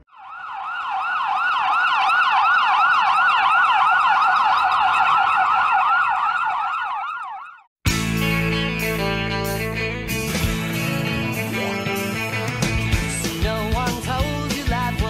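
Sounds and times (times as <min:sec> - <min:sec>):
ambulance siren yelping: 0:00.0 - 0:07.7.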